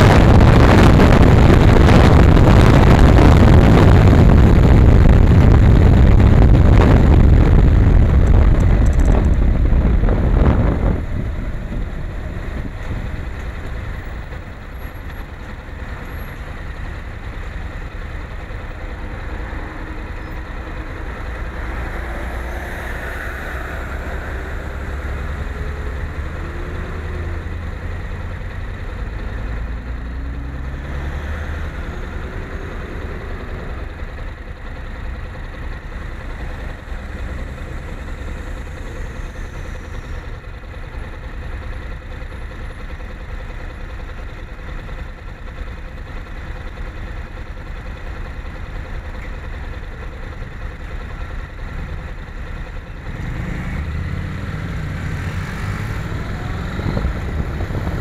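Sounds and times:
wind and road noise: 0.0 - 58.0
motorcycle engine idling: 7.0 - 30.2, 31.9 - 53.3.

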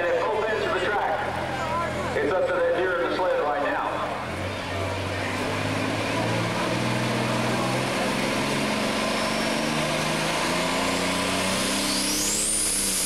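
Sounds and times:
tractor engine idling: 0.0 - 9.1.

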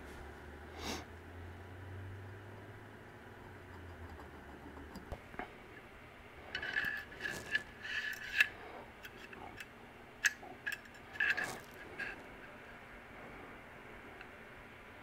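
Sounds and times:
metal parts scraping and clicking: 6.5 - 12.6.

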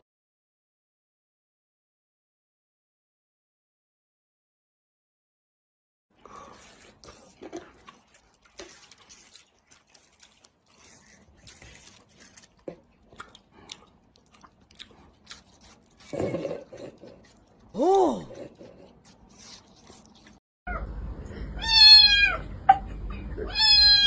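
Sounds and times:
watermelon crunching: 6.2 - 20.4.

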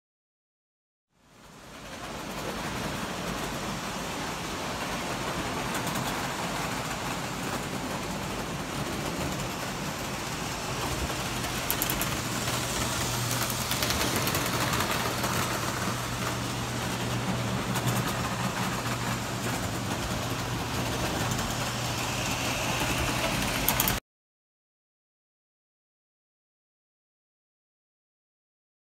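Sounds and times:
wheels rolling on track: 1.4 - 24.0.

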